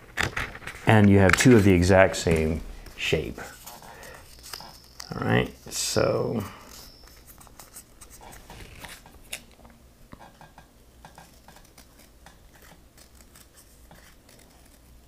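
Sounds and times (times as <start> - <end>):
scissors snipping paper: 11.0 - 15.0.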